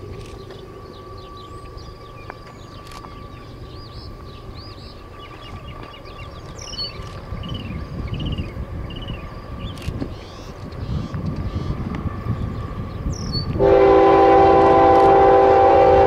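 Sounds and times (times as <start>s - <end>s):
freight train rumbling by: 0.0s - 16.0s.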